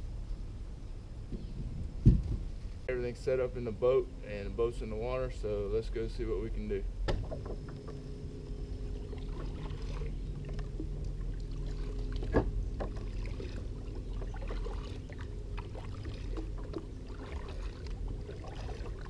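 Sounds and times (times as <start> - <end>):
paddle dipping through water: 8.8 - 19.0
water splashes and drips: 9.1 - 19.0.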